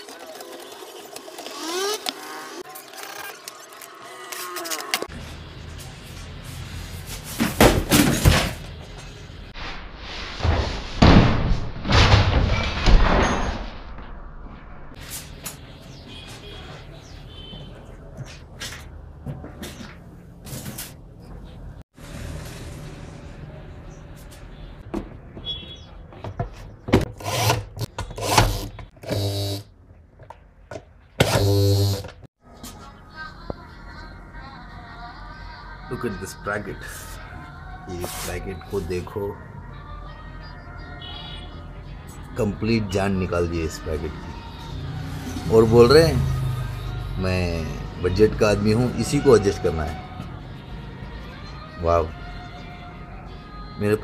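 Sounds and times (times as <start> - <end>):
cordless drill running: 28.2 - 29.6, 31.2 - 32.1.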